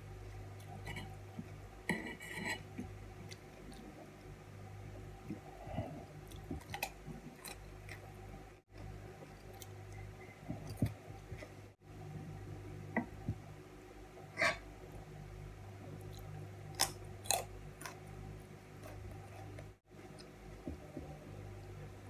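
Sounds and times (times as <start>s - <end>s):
chewing vegetables: 5.3s - 11.5s, 16.0s - 21.2s.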